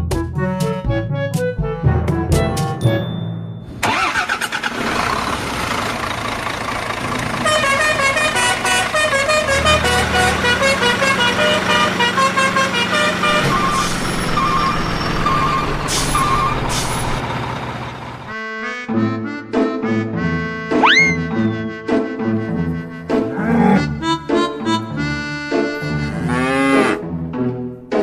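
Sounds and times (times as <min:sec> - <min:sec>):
truck engine running: 0:03.8 - 0:18.4.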